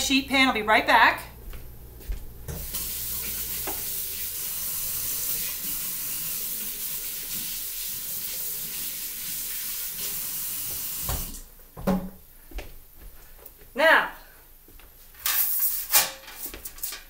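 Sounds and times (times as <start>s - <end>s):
kitchen faucet running: 2.5s - 11.5s
hands washing under water: 2.6s - 9.8s.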